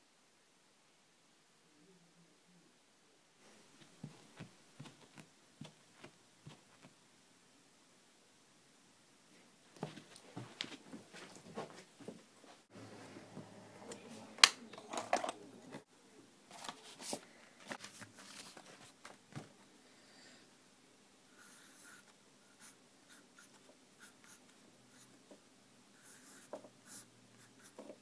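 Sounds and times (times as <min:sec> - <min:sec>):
pencil scratching on paper: 0:21.4 - 0:25.2, 0:26.0 - 0:28.0.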